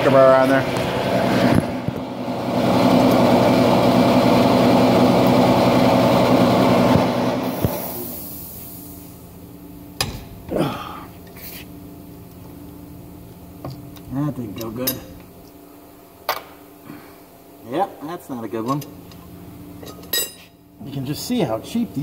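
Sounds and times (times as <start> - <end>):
loud mechanical running: 0.0 - 8.5.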